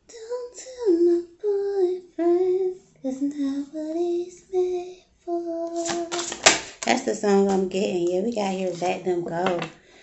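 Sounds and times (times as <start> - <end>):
woman singing slow tune: 0.0 - 6.2.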